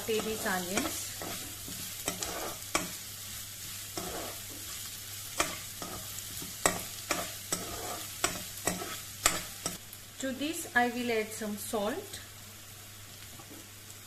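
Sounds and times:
spatula scraping a pan: 0.0s - 9.8s
onions sizzling in hot oil: 0.0s - 14.0s.

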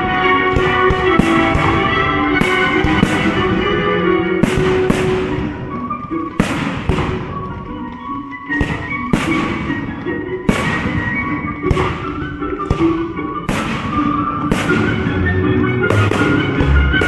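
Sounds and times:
fireworks bangs with echo: 0.0s - 7.8s, 8.5s - 17.0s
classical music: 0.0s - 17.0s.

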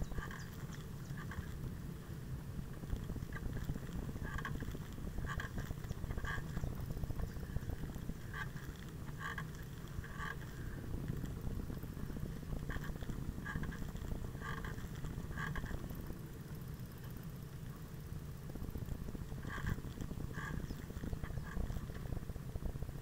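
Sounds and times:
bicycle tyre rumble on asphalt: 0.0s - 23.0s.

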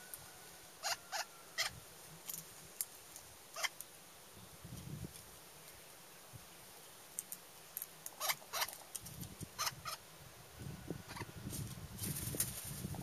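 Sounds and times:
low rumble and rustle: 10.3s - 13.0s.

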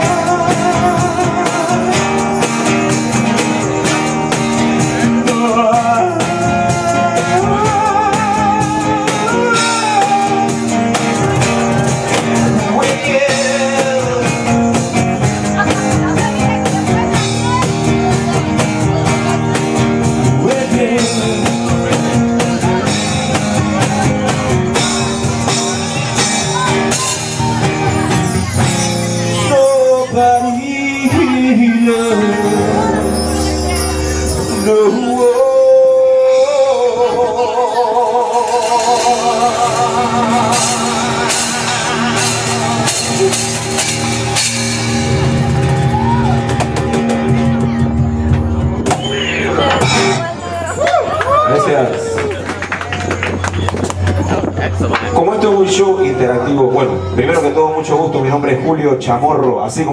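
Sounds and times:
man singing with vibrato: 0.0s - 15.8s, 20.1s - 23.4s, 24.8s - 43.8s
percussion steady beat: 0.0s - 36.9s, 38.2s - 55.8s.

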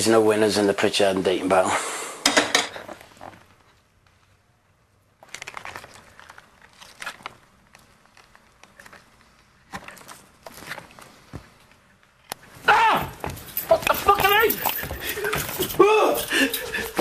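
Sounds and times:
plastic tub crinkling: 5.2s - 11.3s.

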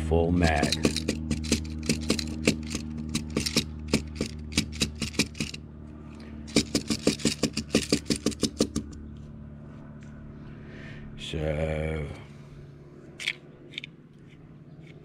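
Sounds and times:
low hum: 0.0s - 15.0s
speed loader clicking: 0.4s - 5.6s, 6.5s - 9.0s.

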